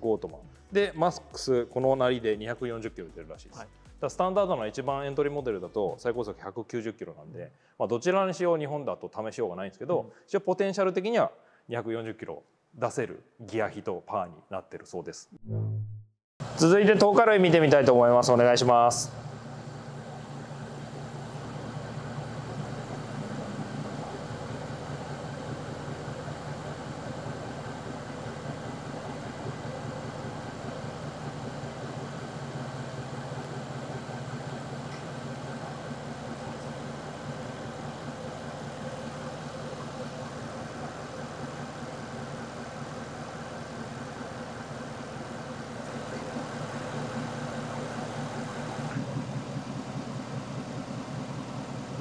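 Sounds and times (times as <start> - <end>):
car engine idling: 16.4 - 52.0.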